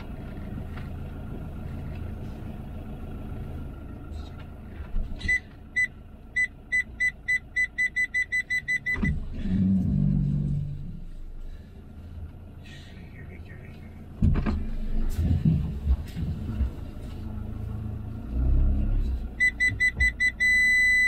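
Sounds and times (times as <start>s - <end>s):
vehicle engine rumbling: 0.0s - 21.0s
parking sensor beeping: 5.2s - 9.7s, 19.3s - 21.0s.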